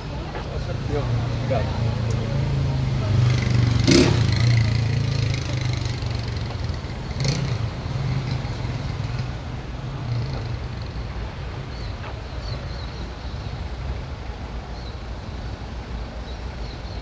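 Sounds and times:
street traffic: 0:00.0 - 0:17.0
vehicle engine humming: 0:00.0 - 0:17.0.

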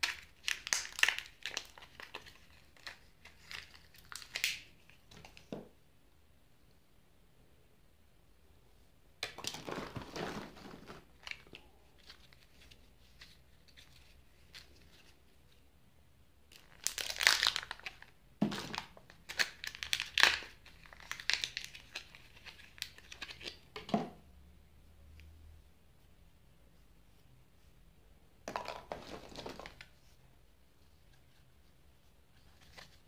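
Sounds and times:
wrapper crinkling and tearing: 0:00.0 - 0:04.9, 0:16.5 - 0:23.6.

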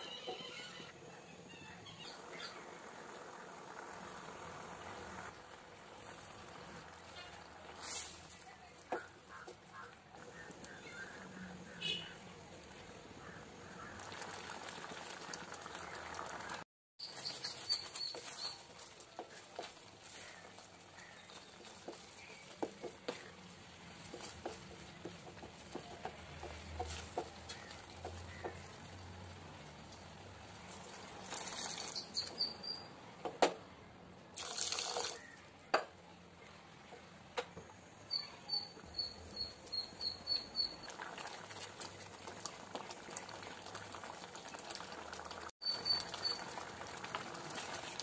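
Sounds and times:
thick food simmering: 0:01.9 - 0:32.9, 0:38.6 - 0:48.0
spatula stirring and scraping pan: 0:03.9 - 0:12.0, 0:17.0 - 0:29.4.

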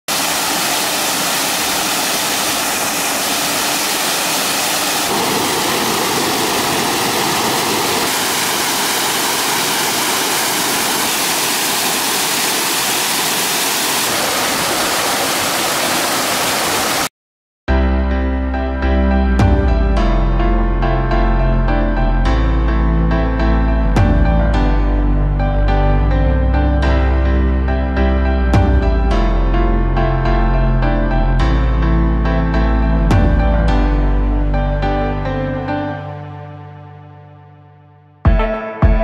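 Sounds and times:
waterfall roaring over rocks: 0:00.1 - 0:17.1.

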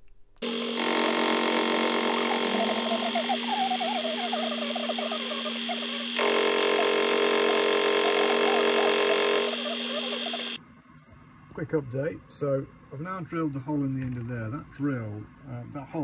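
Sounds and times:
milling machine running: 0:00.4 - 0:10.6
wavering squeal from cutting: 0:00.4 - 0:10.6.

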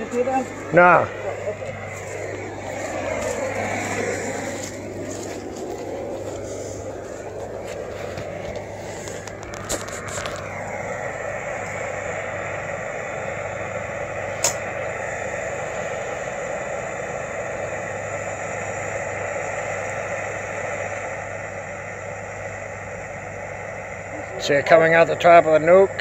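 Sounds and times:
propane torch flame hissing: 0:00.0 - 0:26.0
sharp click: 0:14.4 - 0:14.6.

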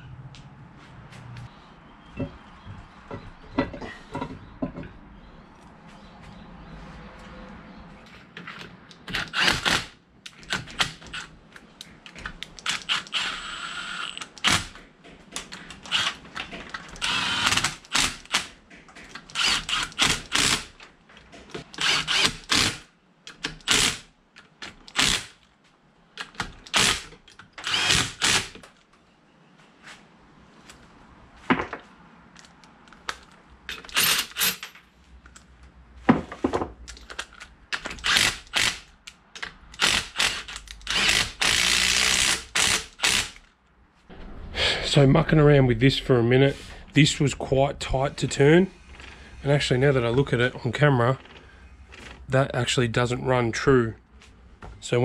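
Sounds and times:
tool whirring: 0:09.1 - 0:11.3, 0:12.6 - 0:14.8, 0:15.8 - 0:18.5, 0:19.2 - 0:20.8, 0:21.6 - 0:22.9, 0:26.6 - 0:28.6, 0:37.8 - 0:38.9, 0:39.7 - 0:43.5
power tool bursts: 0:17.0 - 0:18.5, 0:21.8 - 0:22.8, 0:27.6 - 0:28.5, 0:38.0 - 0:38.9, 0:39.8 - 0:43.4.

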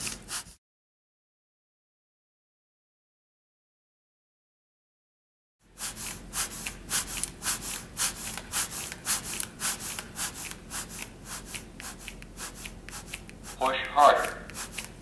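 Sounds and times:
chest compressions on manikin: 0:05.8 - 0:15.0.

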